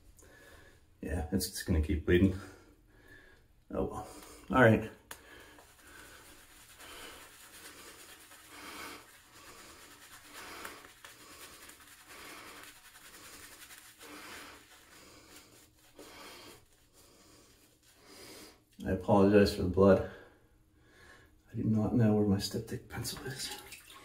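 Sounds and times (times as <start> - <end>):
shaving brush rubbing on face: 5.4 - 18.8.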